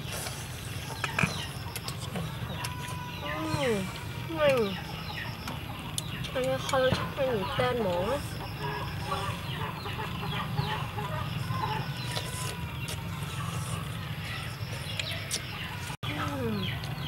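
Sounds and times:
slurping and chewing: 0.0 - 3.0, 11.4 - 16.0
chickens clucking: 0.0 - 17.0.

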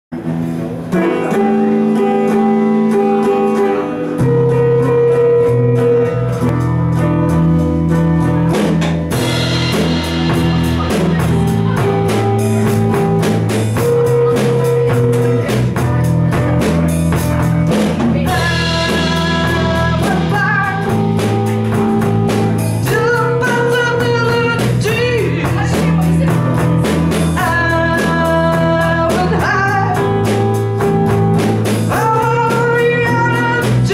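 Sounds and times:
rock band playing: 0.1 - 33.9
person singing: 17.7 - 26.7, 27.3 - 30.6, 31.9 - 33.9.

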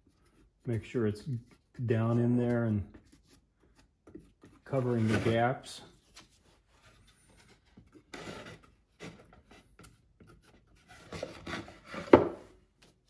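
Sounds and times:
plastic spreader scraping filler: 4.6 - 5.8.

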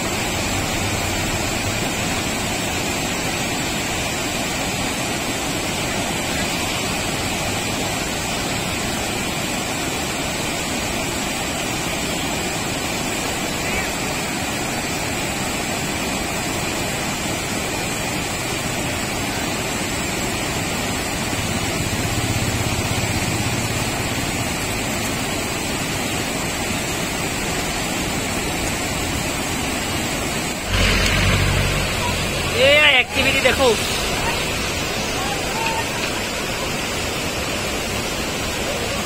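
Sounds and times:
river rapids rushing: 0.0 - 39.0.

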